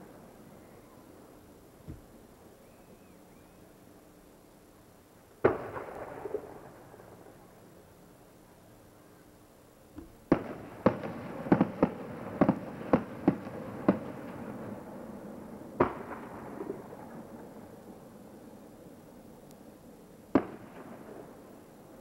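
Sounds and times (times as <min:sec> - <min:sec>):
fireworks bangs: 0:10.2 - 0:14.5.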